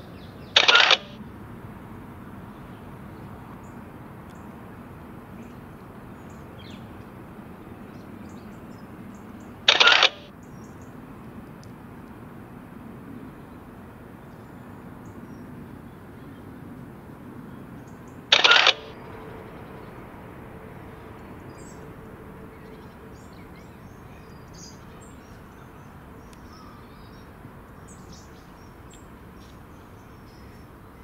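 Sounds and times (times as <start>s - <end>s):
loud harsh burst: 0.6s - 1.2s, 9.7s - 10.3s, 18.3s - 23.3s
high bird chirps: 9.7s - 10.3s.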